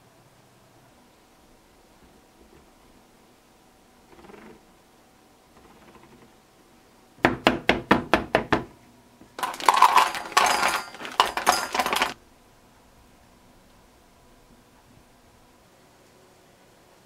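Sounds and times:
chocolate chunks clattering into metal bowl: 9.4 - 12.2.

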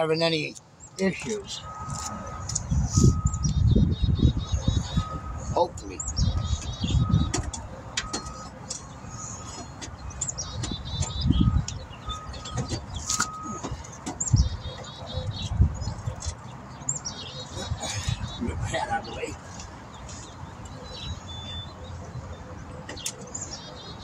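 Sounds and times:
small birds chirping: 0.0 - 24.0
metal clunks and knocks: 6.4 - 8.9, 12.2 - 14.9.

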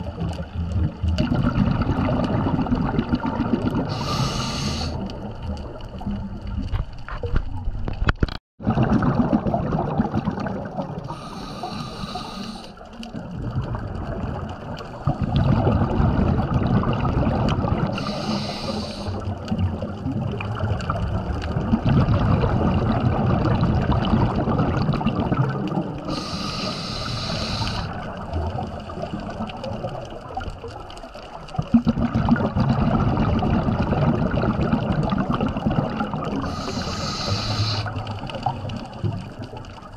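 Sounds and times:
bubbling exhalation: 0.0 - 5.4, 8.6 - 12.5, 13.1 - 30.0, 31.6 - 39.9
hissing regulator inhalations: 3.9 - 5.0, 11.1 - 12.8, 18.0 - 19.2, 26.1 - 28.0, 36.4 - 38.1.

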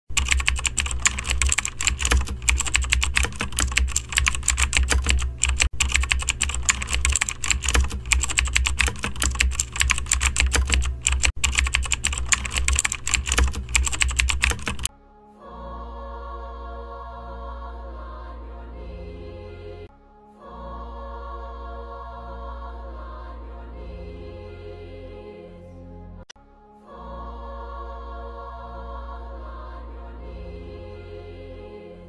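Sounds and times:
keyboard typing clatter: 0.1 - 14.9.

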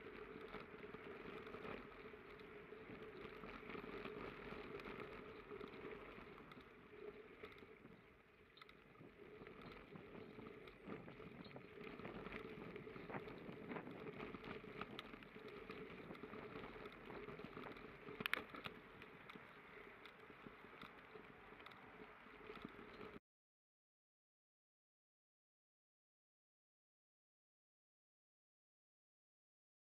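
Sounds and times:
bicycle tyres on gravel: 0.0 - 23.2
light rattling ticks: 0.0 - 23.2.

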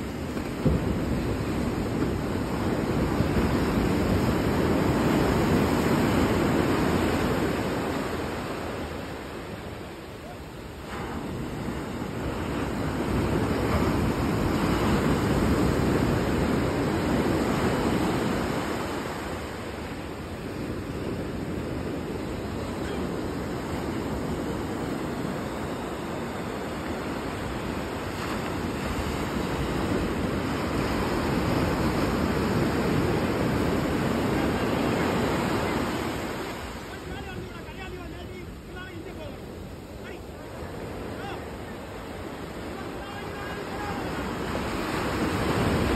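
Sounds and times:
ocean surf breaking on beach: 0.0 - 45.9.

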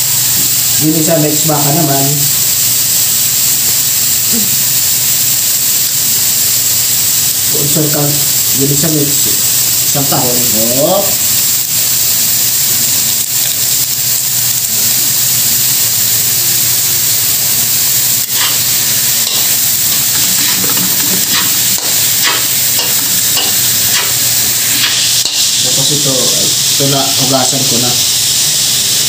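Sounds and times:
vegetables sizzling in oil: 0.0 - 29.0
metal spatula scraping wok: 18.1 - 26.8.

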